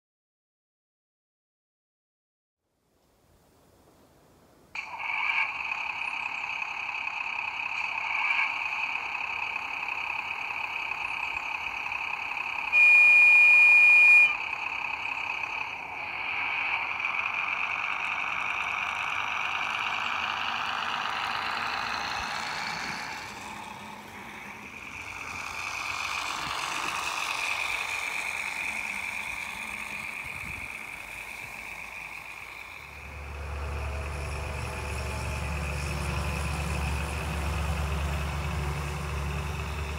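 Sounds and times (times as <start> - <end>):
model train diesel engine sound: 4.8 - 39.9
train horn blast: 12.7 - 14.4.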